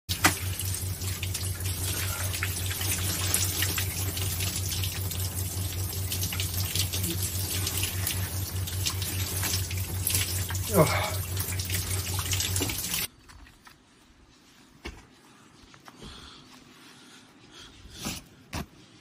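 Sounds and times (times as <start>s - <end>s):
shower water splashing: 0.1s - 13.1s
steady low hum: 0.1s - 13.1s.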